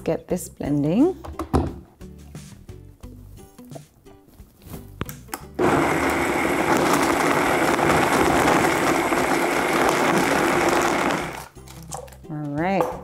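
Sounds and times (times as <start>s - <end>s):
blender running: 5.6s - 11.5s.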